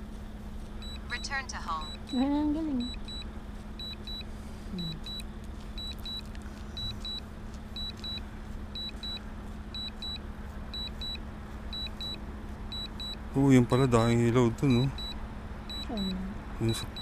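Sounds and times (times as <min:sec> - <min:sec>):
low hum and rumble: 0:00.0 - 0:17.0
high double beeps: 0:00.8 - 0:02.2, 0:02.8 - 0:05.2, 0:08.8 - 0:09.2, 0:09.8 - 0:10.2, 0:10.8 - 0:11.2, 0:12.8 - 0:13.9, 0:14.7 - 0:17.0.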